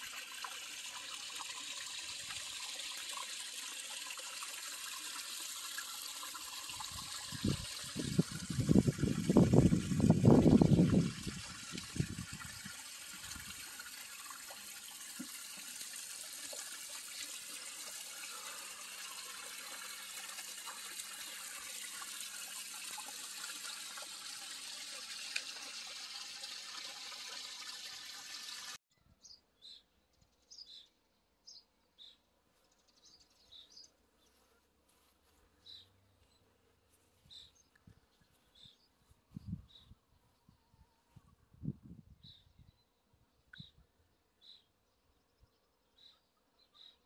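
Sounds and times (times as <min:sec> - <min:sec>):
running water: 0:00.0 - 0:28.8.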